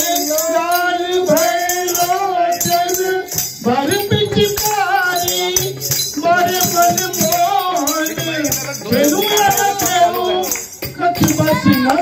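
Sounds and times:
jingling percussion: 0.0s - 12.0s
men singing together: 0.0s - 12.0s.

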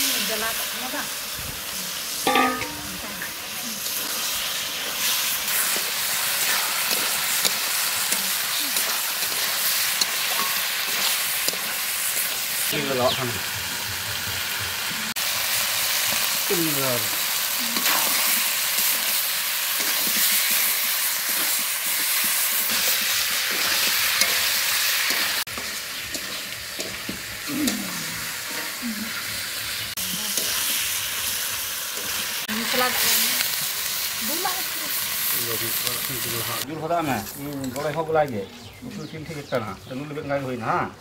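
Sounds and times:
food sizzling in a pan: 0.0s - 40.9s
spatula stirring: 5.5s - 12.4s.

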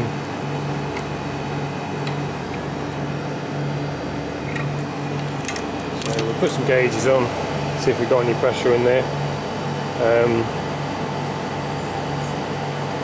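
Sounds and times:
condensing unit fans whirring: 0.0s - 13.0s.

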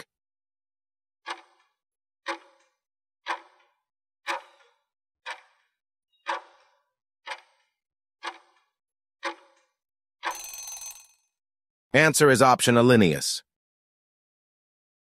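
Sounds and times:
clock ticking: 1.3s - 1.6s, 2.3s - 2.6s, 3.3s - 3.6s, 4.3s - 4.7s, 5.3s - 5.6s, 7.3s - 7.6s, 8.2s - 8.6s, 9.2s - 9.6s
short ringing sound: 10.3s - 11.2s.

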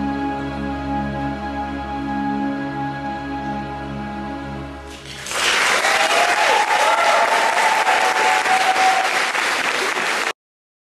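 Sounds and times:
held music chord: 0.0s - 5.0s
audience applause: 4.9s - 10.4s.

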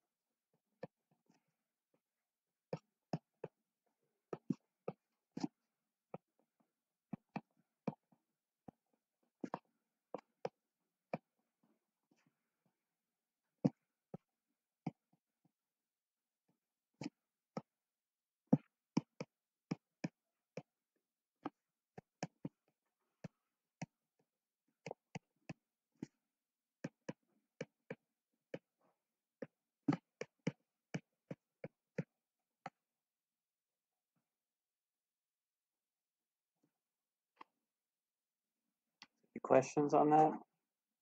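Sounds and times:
stylus clicking on a tablet screen: 18.6s - 20.7s.

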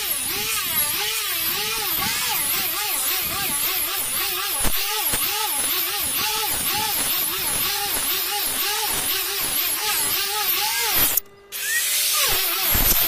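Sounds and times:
angle grinder sanding wood: 0.0s - 13.0s.

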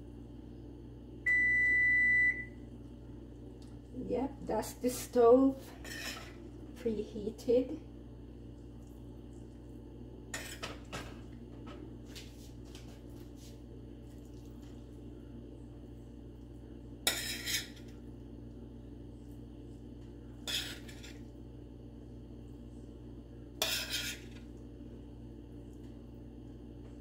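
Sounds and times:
spoon scraping glass dish: 5.8s - 6.3s, 17.1s - 17.8s, 23.6s - 24.3s.

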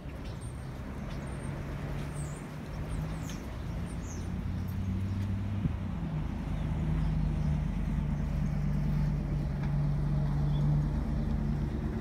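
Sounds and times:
engine running with low hum: 0.0s - 12.0s.

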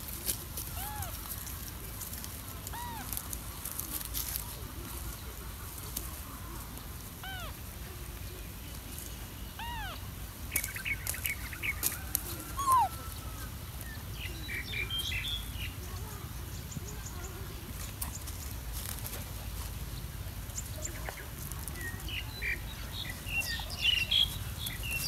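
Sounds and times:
high animal squeaks: 0.8s - 1.2s, 2.7s - 3.2s, 7.2s - 7.6s, 9.6s - 10.0s, 12.5s - 13.1s
animal chirps: 9.6s - 10.0s, 12.6s - 13.0s.

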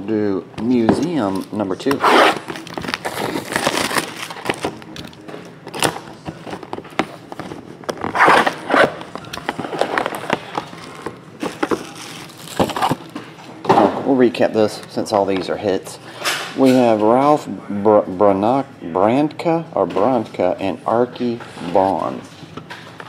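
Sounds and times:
plastic shrink-wrap crinkling and tearing: 2.3s - 6.1s, 8.0s - 13.1s.

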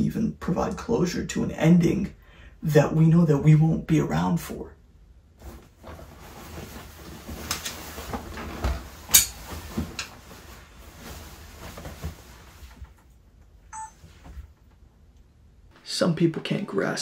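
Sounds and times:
fabric rustling: 5.3s - 13.4s.

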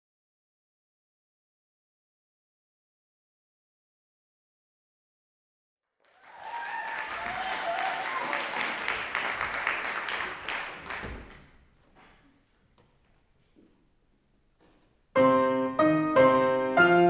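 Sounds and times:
audience applauding: 6.0s - 11.7s.

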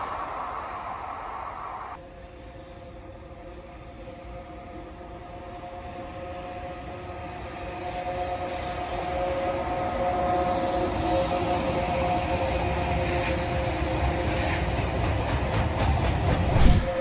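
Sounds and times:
freight train running: 0.0s - 17.0s
two-note locomotive whine: 1.8s - 14.7s.

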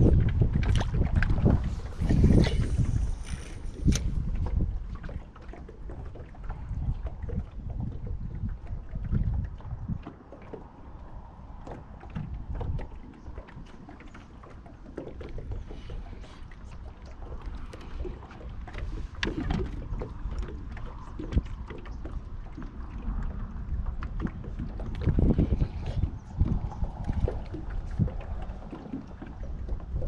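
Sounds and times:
rumble of wind and water: 0.0s - 30.0s.

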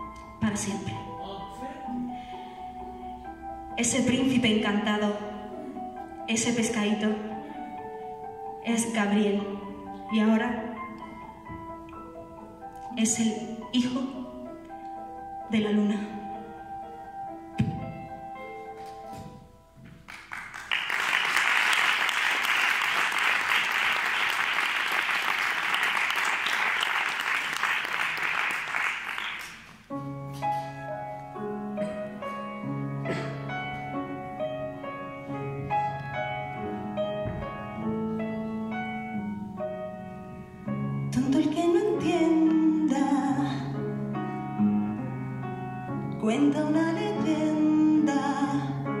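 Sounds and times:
slow grand piano: 0.0s - 49.0s
audience applauding: 20.1s - 29.9s.

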